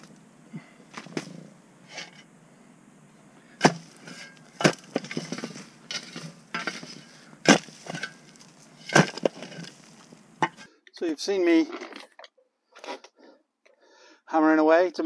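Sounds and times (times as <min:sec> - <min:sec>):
shovel scraping soil and gravel: 0:00.0 - 0:02.3, 0:03.5 - 0:10.7
shovel blade striking stone: 0:03.6 - 0:10.6.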